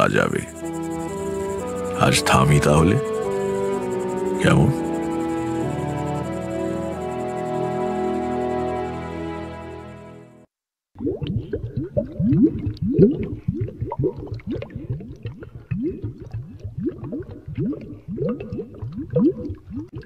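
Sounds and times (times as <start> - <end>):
music: 0.0 - 10.5
bubbling gurgling liquid: 11.0 - 20.0.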